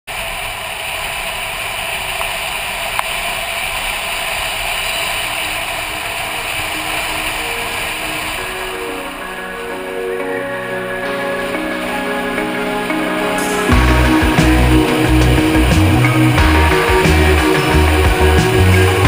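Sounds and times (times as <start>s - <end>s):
motorcycle engine: 10.6s - 19.0s.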